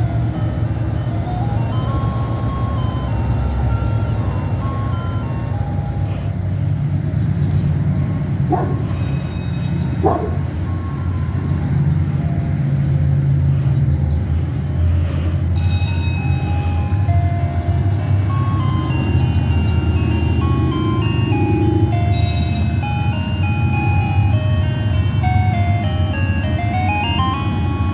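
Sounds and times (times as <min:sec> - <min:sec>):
low engine rumble: 0:00.0 - 0:27.9
music box jingle: 0:00.2 - 0:06.0, 0:09.0 - 0:11.6, 0:15.5 - 0:27.9.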